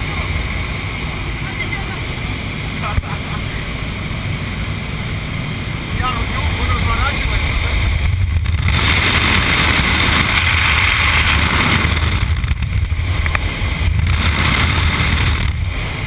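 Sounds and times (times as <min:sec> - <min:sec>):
aircraft engine drone: 0:00.0 - 0:16.0
wind rushing: 0:03.7 - 0:16.0.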